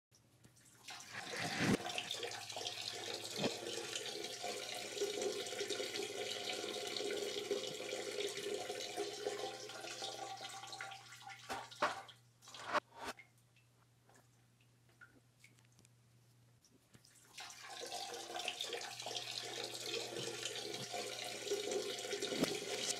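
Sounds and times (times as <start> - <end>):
tap water running into sink: 0.9 - 12.1, 17.4 - 22.9.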